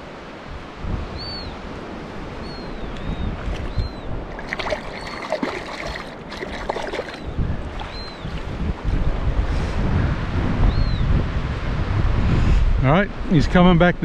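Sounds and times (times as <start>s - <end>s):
wind buffeting microphone: 0.0s - 14.0s
water lapping at shore: 1.5s - 9.6s
short high bird calls: 2.4s - 4.2s, 4.8s - 5.4s, 7.0s - 8.3s
seagulls squawking: 2.4s - 8.4s.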